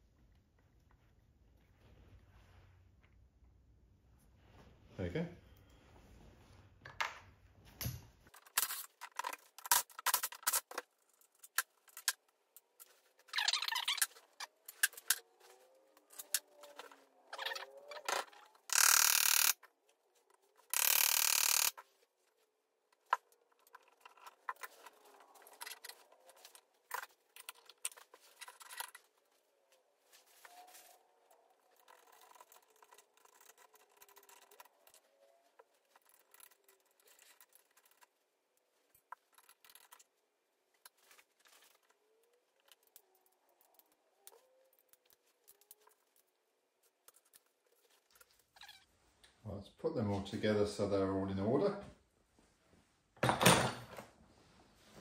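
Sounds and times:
metal parts clinking and scraping: 0:08.3 - 0:15.4.

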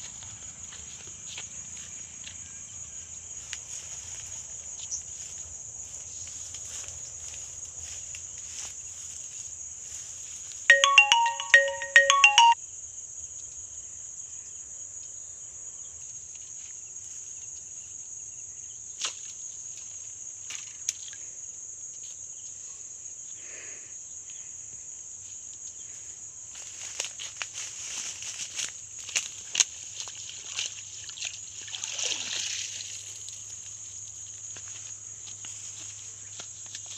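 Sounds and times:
electronic ringtone beeping melody: 0:10.7 - 0:12.6.

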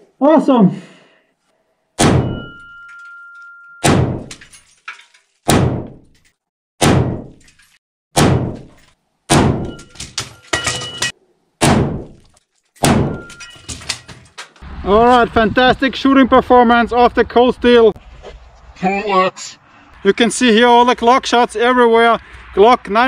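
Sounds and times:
metallic ring of steel target: 0:02.0 - 0:04.5, 0:08.4 - 0:11.1, 0:12.8 - 0:13.9.

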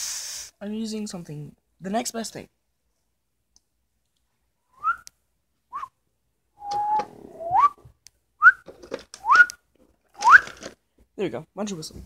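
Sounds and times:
short rising whistles: 0:04.7 - 0:05.0, 0:05.7 - 0:06.0, 0:06.6 - 0:08.6, 0:09.2 - 0:09.6, 0:10.2 - 0:10.5.

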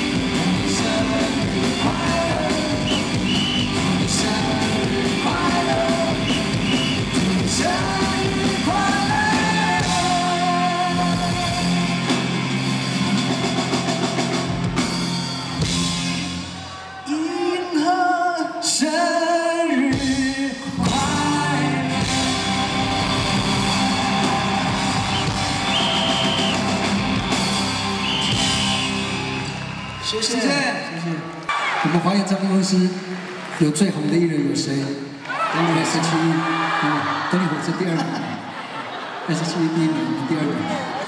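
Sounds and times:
man singing: 0:00.0 - 0:12.0, 0:17.0 - 0:23.6
live rock band playing: 0:00.0 - 0:16.7, 0:19.9 - 0:30.0.

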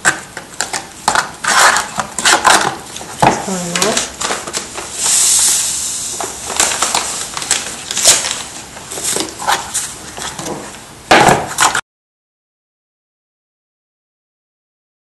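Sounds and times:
palette knife scraping paste: 0:01.4 - 0:02.6
plastic bag crinkling: 0:06.5 - 0:09.7.

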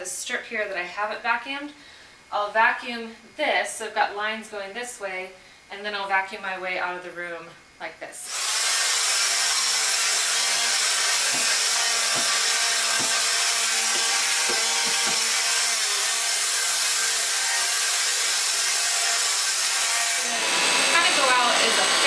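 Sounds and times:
vacuum cleaner running on carpet: 0:20.2 - 0:22.0.

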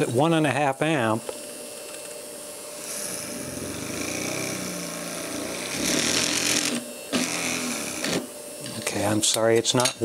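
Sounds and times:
drill bit grinding metal: 0:02.8 - 0:08.2
small drill motor bogging down: 0:02.9 - 0:08.2.

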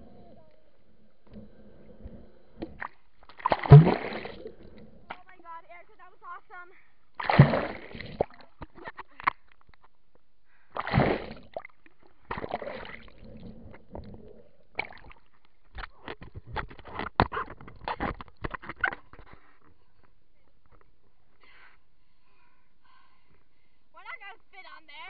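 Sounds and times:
water splashing over camera: 0:02.6 - 0:05.2, 0:07.2 - 0:08.9.

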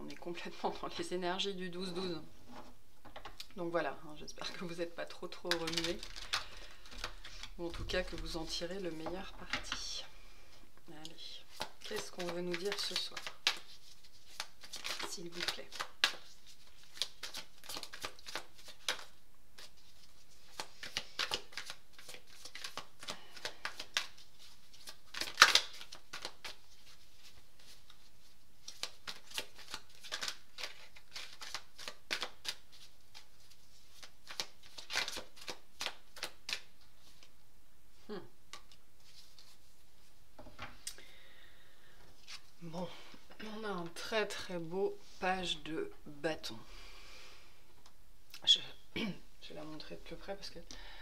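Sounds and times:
cards being shuffled: 0:04.4 - 0:09.9, 0:11.4 - 0:37.3, 0:38.5 - 0:39.8, 0:42.2 - 0:42.6.

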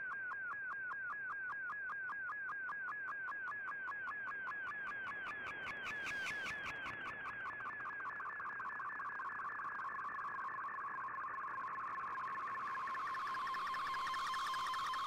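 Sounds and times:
warbling data signal: 0:12.7 - 0:15.0.

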